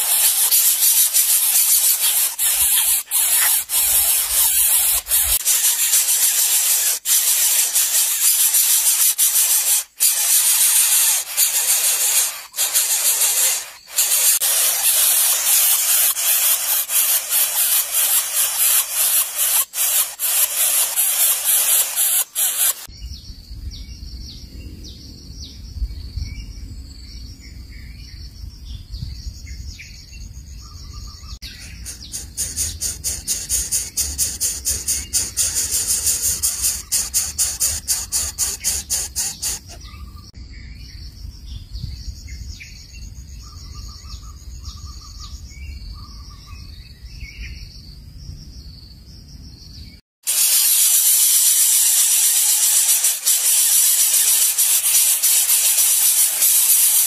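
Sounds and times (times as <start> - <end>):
nestlings hissing: 0.0 - 22.9, 31.4 - 39.9, 50.2 - 57.0.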